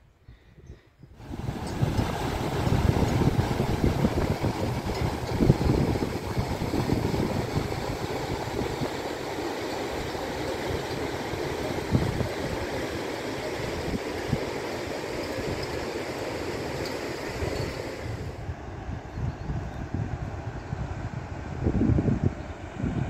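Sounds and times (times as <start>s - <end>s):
wind buffeting microphone: 0.3s - 12.8s, 16.7s - 23.0s
river rushing: 1.2s - 18.3s.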